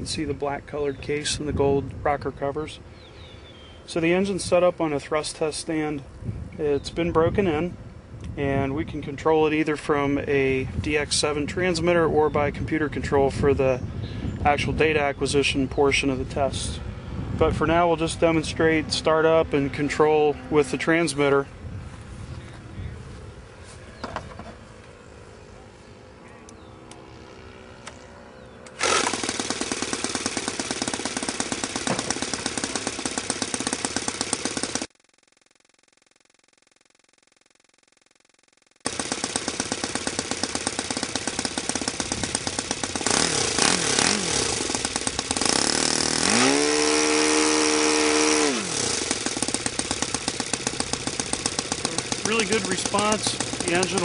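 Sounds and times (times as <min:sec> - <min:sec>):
model glow engine running: 0:28.8 - 0:34.9, 0:38.9 - 0:54.0.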